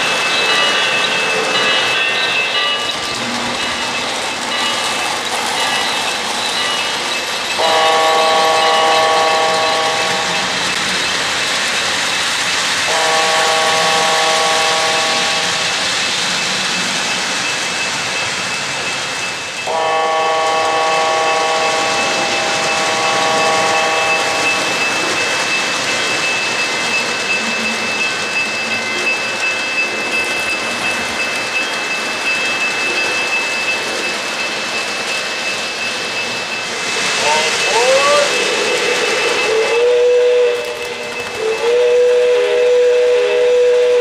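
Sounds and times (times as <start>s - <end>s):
model train rolling on track: 0.0s - 44.0s
model train horn chord: 7.6s - 10.2s, 12.9s - 15.6s, 19.7s - 24.5s, 39.7s - 40.8s, 41.6s - 44.0s.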